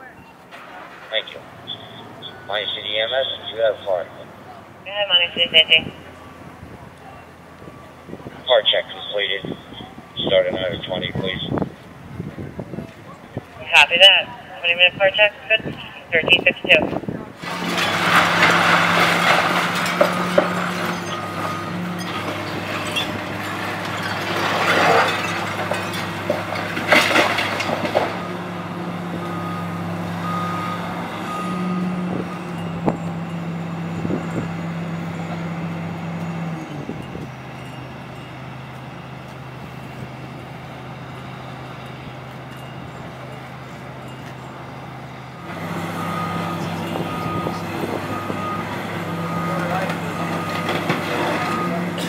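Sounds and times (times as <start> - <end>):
diesel engine running: 0.0 - 52.0
brick and debris crashing: 17.5 - 28.2.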